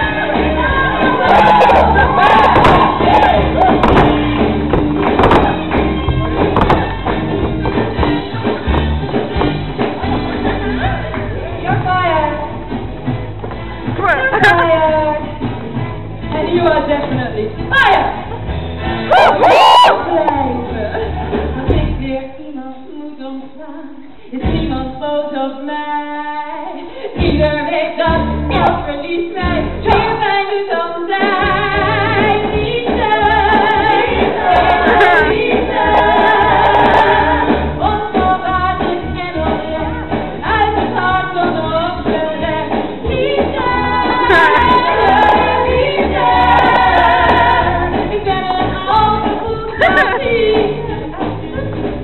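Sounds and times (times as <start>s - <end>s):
live band playing: 0.0s - 21.8s, 31.2s - 52.0s
person singing: 43.2s - 51.8s.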